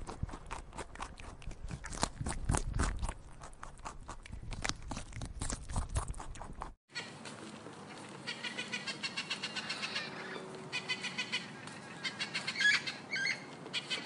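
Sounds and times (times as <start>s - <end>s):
parrot squawks: 8.2s - 14.0s.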